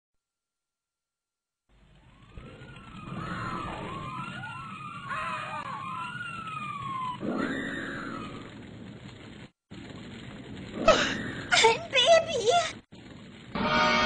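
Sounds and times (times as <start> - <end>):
low rumble: 1.7 - 11.9
fire engine sirens wailing: 1.8 - 8.7.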